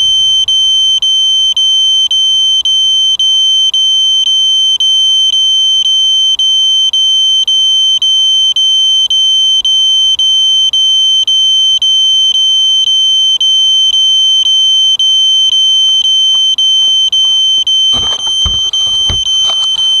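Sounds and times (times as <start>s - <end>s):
piezo alarm buzzer beeping: 14.5s - 20.0s
knocks and rustling of handling: 17.9s - 20.0s.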